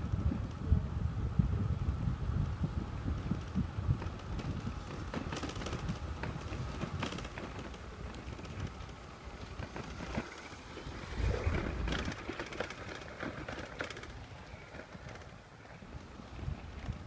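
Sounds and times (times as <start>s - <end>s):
low rumbling noise: 7.8s - 14.7s.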